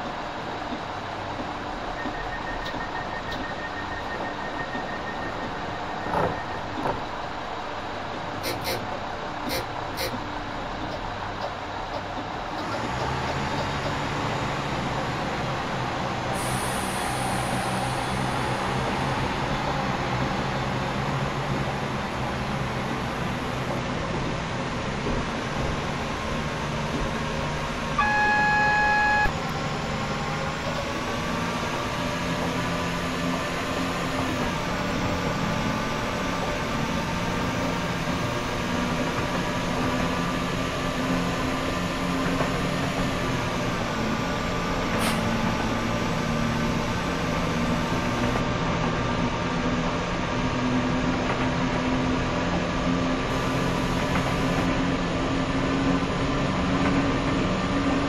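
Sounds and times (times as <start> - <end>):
diesel train rumble and hum: 0.0 - 58.0
steady beep: 28.0 - 29.3
whine gliding in pitch: 28.0 - 29.7.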